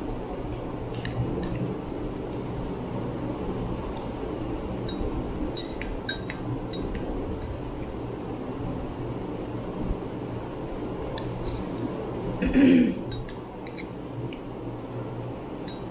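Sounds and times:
spoons clinking on glass bowls: 5.6s - 6.9s, 13.1s - 13.9s.

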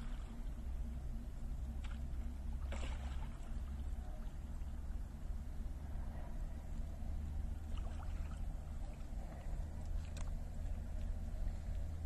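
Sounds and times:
small water splashes: 0.0s - 0.7s, 1.6s - 5.1s, 7.5s - 10.8s
paddle dipping and dripping: 0.0s - 5.3s, 7.5s - 11.2s
steady low rumble: 0.0s - 12.0s.

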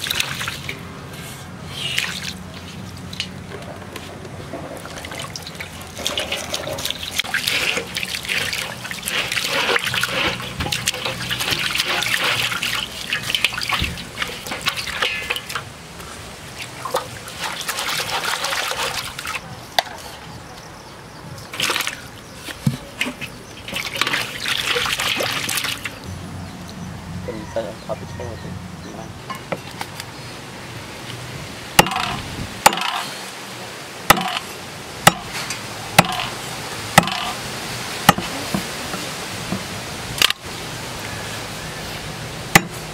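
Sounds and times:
water sloshing in metal basin: 0.0s - 20.1s, 21.4s - 26.8s, 34.1s - 40.4s
plastic scrubber scrubbing: 6.0s - 15.4s.

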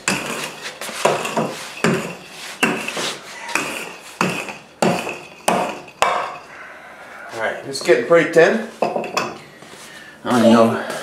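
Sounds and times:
rolling pin knocking and scraping: 0.0s - 6.5s.

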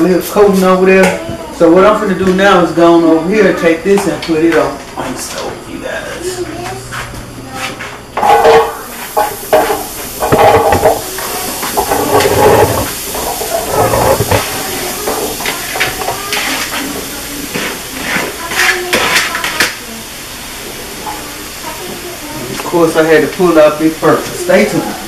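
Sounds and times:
vegetables sizzling in a frying pan: 8.0s - 25.0s
knocks and scrapes on plastic bowl: 9.6s - 14.5s.

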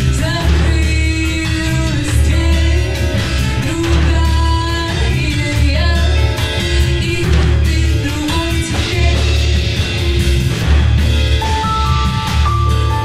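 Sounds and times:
woman singing: 0.0s - 9.9s
drums: 0.0s - 13.0s
electric bass guitar: 0.0s - 13.0s
guitar: 0.0s - 13.0s.

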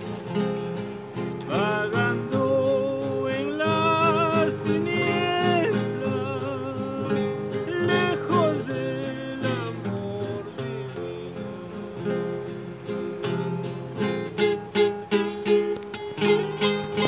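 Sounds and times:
acoustic guitar strumming: 0.0s - 17.0s
man singing: 1.4s - 12.9s.

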